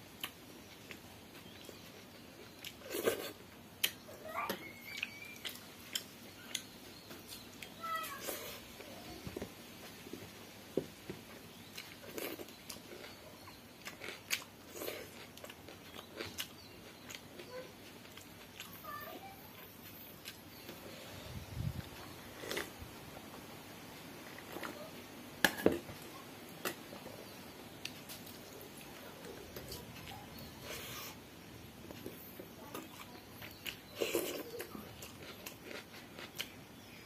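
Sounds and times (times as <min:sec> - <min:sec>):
wet chewing and lip smacks: 0:04.8 - 0:07.8.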